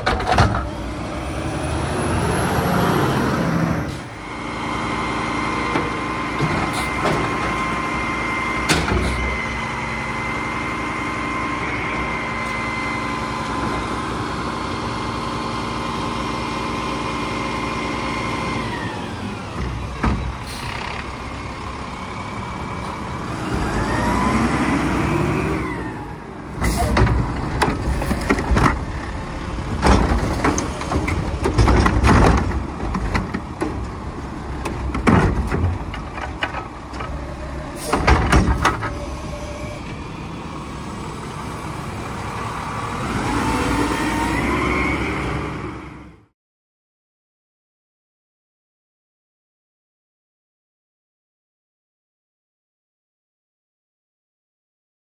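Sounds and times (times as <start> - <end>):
garbage truck engine revving: 0.0 - 46.3
metal clanks and bangs: 29.7 - 34.0, 34.6 - 37.1, 37.8 - 39.0.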